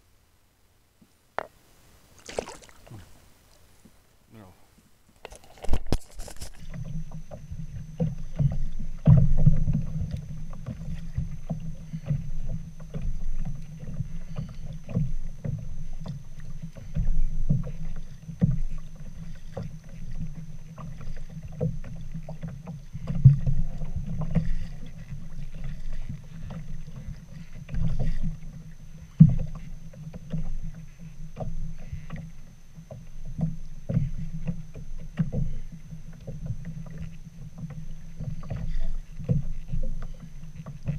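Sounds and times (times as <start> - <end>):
waves lapping against kayak hull: 1.4 - 40.9
dull knocks on hull: 6.7 - 16.2.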